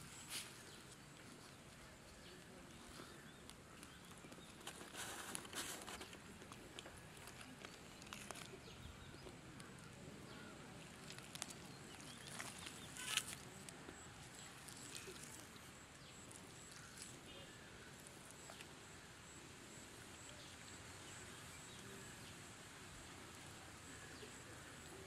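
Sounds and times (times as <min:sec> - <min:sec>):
clicks and rustles of handling meat: 0:02.4 - 0:10.0, 0:10.8 - 0:17.3.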